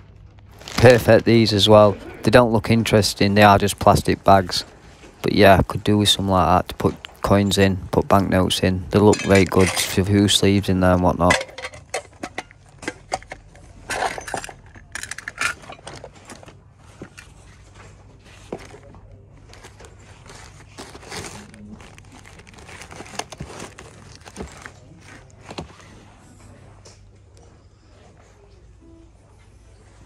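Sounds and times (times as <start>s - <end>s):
plastic bags crinkling: 0.0s - 7.4s, 13.7s - 26.1s
small items clicking and knocking: 11.2s - 17.3s.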